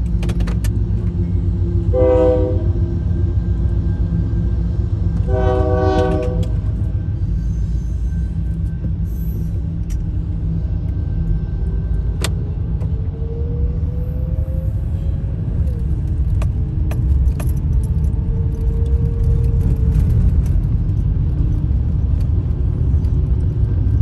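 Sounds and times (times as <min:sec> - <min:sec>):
freight train rumbling: 0:00.0 - 0:24.0
locomotive air horn blasts: 0:01.9 - 0:02.8, 0:05.2 - 0:06.8.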